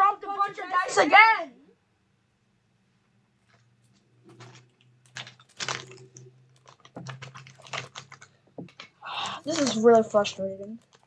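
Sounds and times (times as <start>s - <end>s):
dice clattering on desk: 4.3s - 9.9s.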